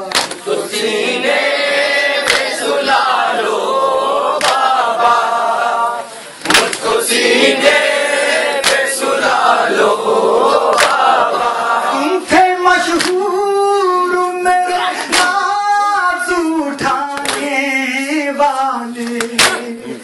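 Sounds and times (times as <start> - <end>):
group of voices singing: 0.0 - 20.0
hands slapping chests: 0.1 - 0.4, 2.2 - 2.6, 4.4 - 4.7, 6.4 - 6.9, 8.6 - 8.9, 10.7 - 11.1, 13.0 - 13.2, 15.0 - 15.4, 19.0 - 19.6
man singing a lament: 9.5 - 20.0.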